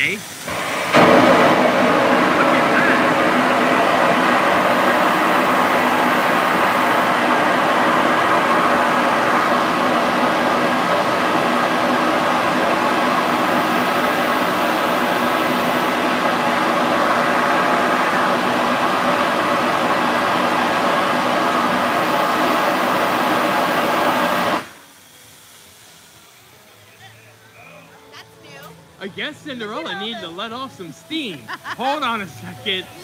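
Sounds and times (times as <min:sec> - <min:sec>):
steam locomotive hissing steam: 0:00.0 - 0:33.0.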